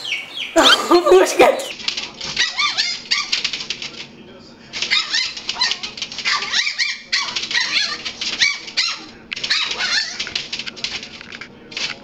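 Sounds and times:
rapid clicking: 1.8 - 4.1
dog whining and yipping: 2.4 - 3.3.

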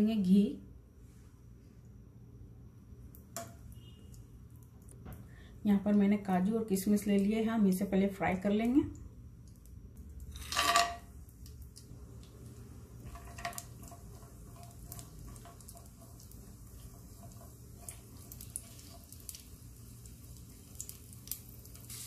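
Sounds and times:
frying sizzle: 8.1 - 22.0
spatula stirring in a pan: 12.7 - 22.0.

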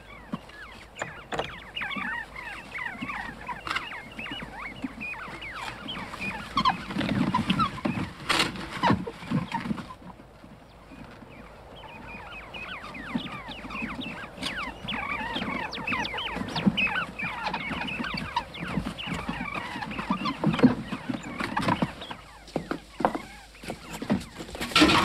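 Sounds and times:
small birds chirping: 0.0 - 25.0
knocks: 1.0 - 2.0.

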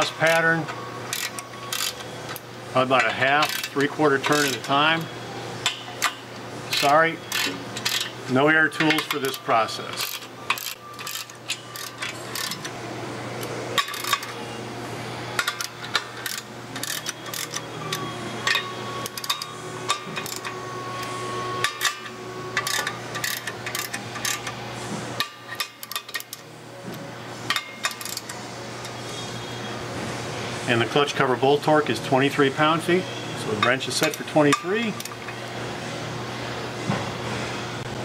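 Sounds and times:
ratchet wrench clicking: 1.1 - 2.0, 3.4 - 3.8, 6.7 - 8.1, 10.0 - 12.7, 13.8 - 14.3, 15.4 - 17.6, 18.4 - 20.5, 22.6 - 24.5, 25.2 - 26.4, 27.5 - 28.3.

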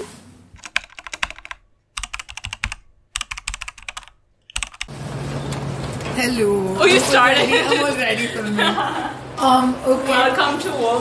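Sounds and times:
room noise: 0.0 - 11.0
keyboard key clicks: 0.6 - 4.9.

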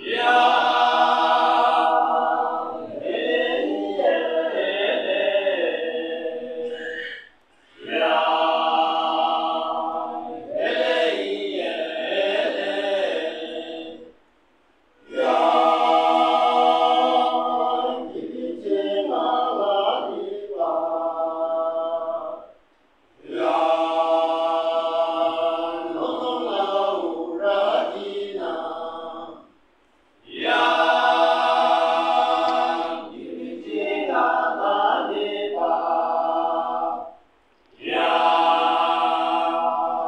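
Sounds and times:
male choir singing unaccompanied: 0.0 - 14.2, 15.0 - 22.6, 23.2 - 29.5, 30.2 - 40.0.

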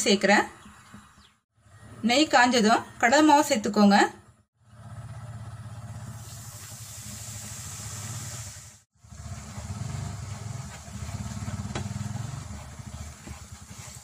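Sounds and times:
flour sizzling in hot oil: 6.0 - 14.0.

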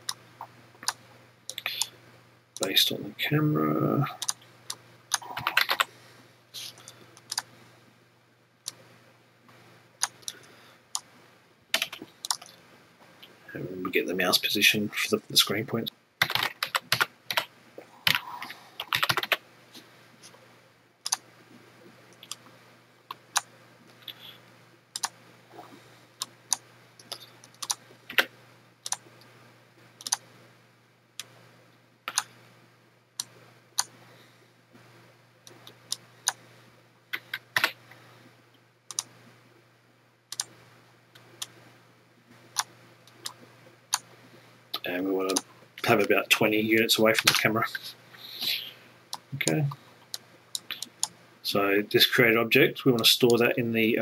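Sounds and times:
faint low hum: 0.0 - 54.0
keyboard typing: 0.8 - 1.9, 4.2 - 5.9, 6.6 - 7.5, 10.0 - 11.1, 11.7 - 12.6, 16.2 - 19.4, 22.1 - 22.4, 24.9 - 29.0, 30.0 - 30.2, 32.1 - 32.3, 37.1 - 37.8, 38.9 - 39.1, 40.3 - 40.5, 45.3 - 46.0, 48.4 - 51.2.

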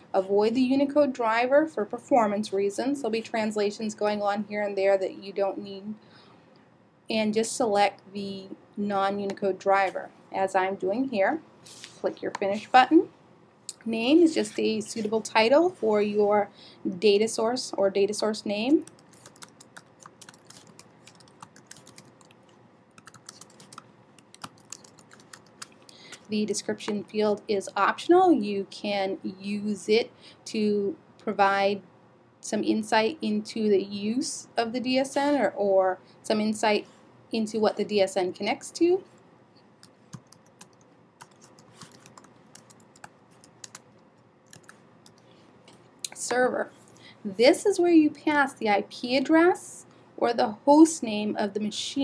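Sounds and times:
keyboard typing clicks: 18.8 - 26.0, 39.8 - 43.9, 44.5 - 45.2.

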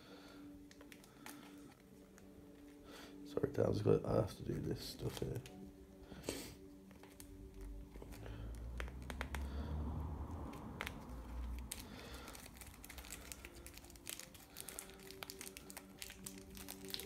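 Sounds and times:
plastic crinkling: 0.6 - 2.8, 6.8 - 9.5, 10.7 - 17.0.

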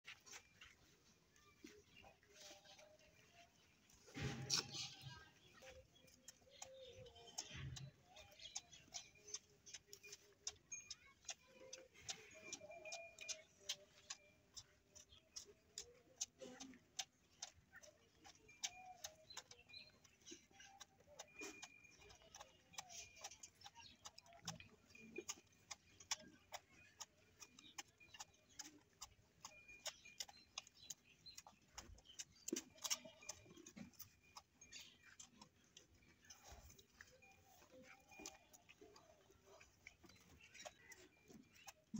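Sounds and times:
calf sucking wetly: 0.1 - 41.9.

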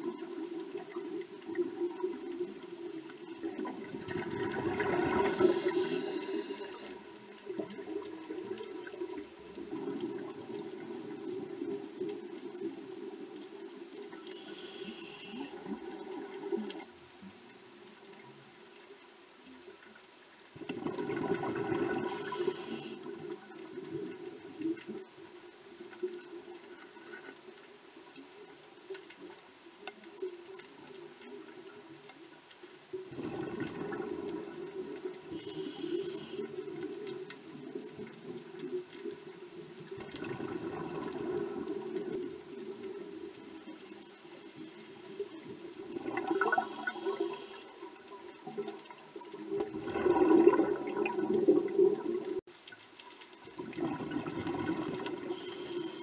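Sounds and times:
gurgling exhaled bubbles: 3.2 - 6.9, 20.6 - 24.2, 33.1 - 35.6, 36.5 - 43.3, 45.8 - 47.4, 48.4 - 52.4, 53.6 - 55.5
hissing regulator inhalations: 5.2 - 7.0, 14.3 - 15.6, 22.0 - 23.1, 35.3 - 36.5, 55.3 - 56.0.

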